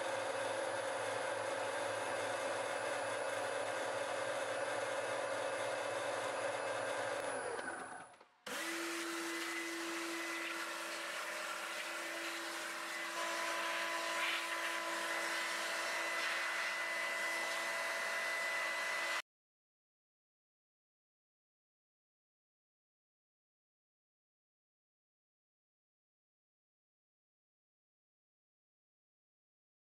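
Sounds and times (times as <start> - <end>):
milling machine whine: 0.0 - 19.2.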